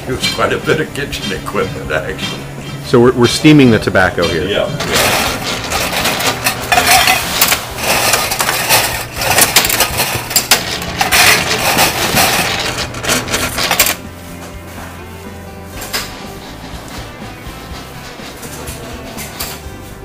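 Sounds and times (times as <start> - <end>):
metallic clicking and clattering: 4.2 - 14.0.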